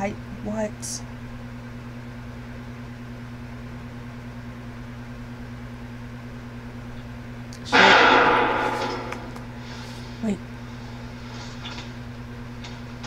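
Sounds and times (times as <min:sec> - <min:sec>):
low hum: 0:07.6 - 0:10.2
sudden loud burst: 0:07.7 - 0:09.6.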